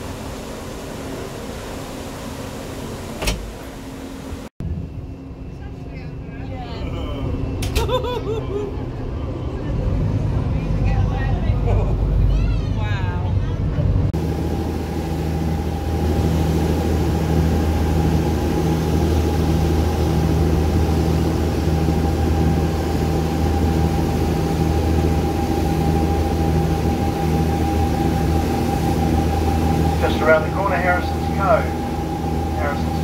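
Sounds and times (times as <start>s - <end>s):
boat engines humming: 0.0s - 33.0s
high-pitched engine whine: 0.0s - 33.0s
wind and water rushing: 14.2s - 33.0s.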